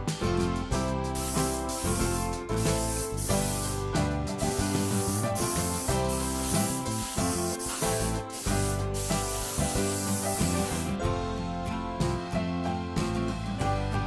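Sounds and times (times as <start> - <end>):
background music with steady beat: 0.0 - 14.0
paint spray gun hissing: 1.2 - 11.0.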